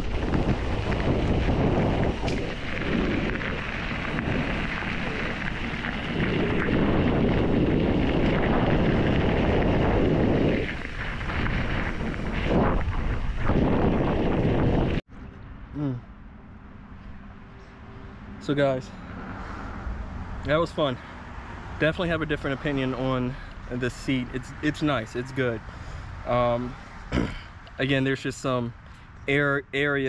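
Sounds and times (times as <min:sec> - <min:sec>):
tyres rolling over gravel: 0:00.0 - 0:14.9
wind buffeting microphone: 0:00.0 - 0:15.1.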